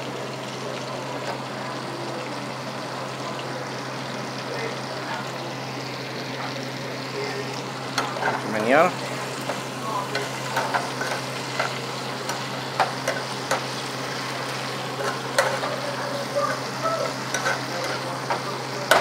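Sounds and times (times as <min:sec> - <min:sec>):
shrimp sizzling in a pan: 0:00.0 - 0:19.0
metal tongs clicking on pan: 0:09.4 - 0:13.8, 0:15.0 - 0:15.8, 0:17.3 - 0:19.0.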